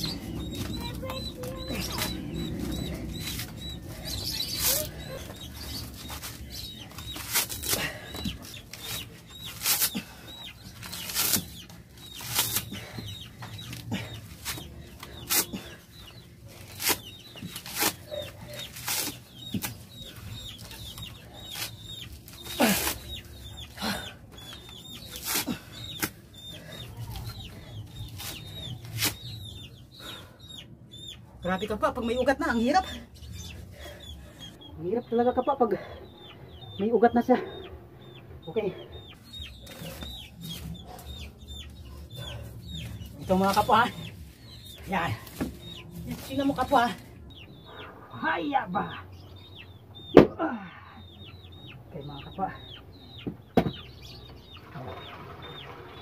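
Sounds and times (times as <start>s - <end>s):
coconut husk ripping and cracking: 7.0s - 7.9s, 10.9s - 12.7s, 18.7s - 19.8s.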